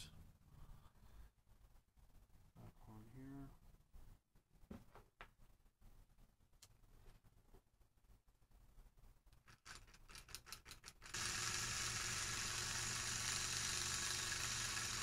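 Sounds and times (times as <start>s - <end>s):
small electric motor humming: 11.0s - 15.0s.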